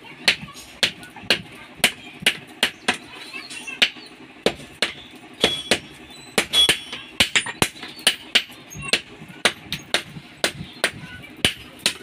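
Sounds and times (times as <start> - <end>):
hammer striking metal on anvil: 4.5 - 12.0.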